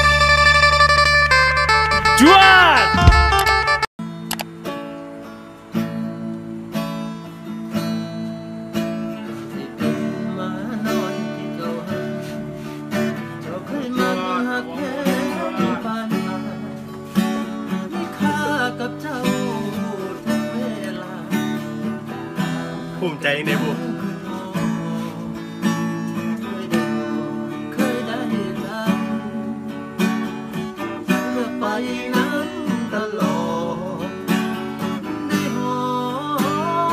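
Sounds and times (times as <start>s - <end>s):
acoustic guitar strumming: 0.0s - 36.9s
man singing: 2.0s - 3.4s, 9.3s - 12.4s, 13.2s - 16.8s, 17.6s - 22.2s, 22.9s - 25.4s, 26.3s - 29.5s, 31.0s - 34.4s, 35.0s - 36.9s.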